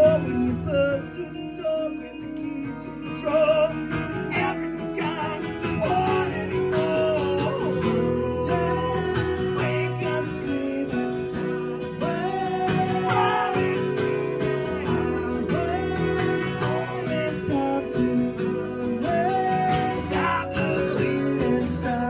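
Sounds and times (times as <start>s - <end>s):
electric guitar: 0.0s - 22.0s
man singing: 0.0s - 22.0s
strummed acoustic guitar: 0.0s - 22.0s.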